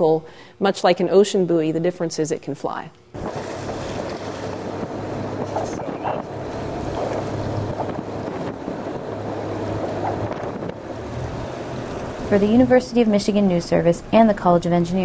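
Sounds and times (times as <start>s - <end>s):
low motor hum: 3.1s - 15.0s
choppy sea water: 3.2s - 13.1s
wind on microphone: 3.2s - 13.1s.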